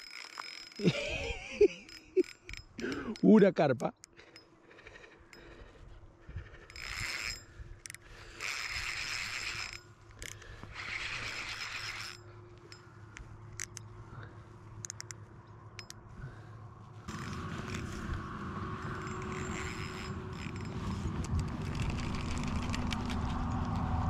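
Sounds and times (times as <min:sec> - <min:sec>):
fishing reel whirring: 0:00.0 - 0:03.3, 0:04.0 - 0:12.9, 0:13.5 - 0:13.8, 0:15.8 - 0:16.0, 0:17.1 - 0:24.0
steady rushing sound: 0:16.7 - 0:24.0.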